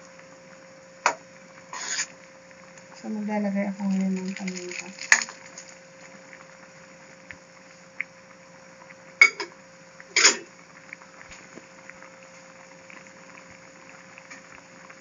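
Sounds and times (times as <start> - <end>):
stew simmering: 0.0 - 15.0.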